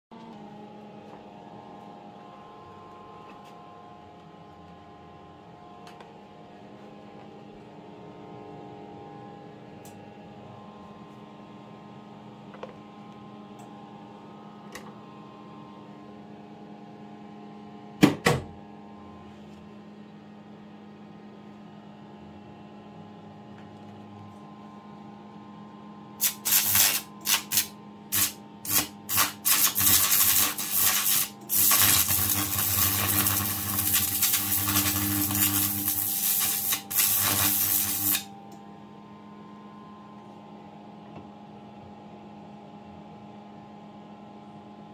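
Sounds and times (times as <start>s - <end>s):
electrical hum: 0.1s - 44.9s
sharp electric crack: 26.2s - 38.2s
arc lamp loud hiss: 26.2s - 38.3s
arc lamp sputtering: 26.2s - 38.3s.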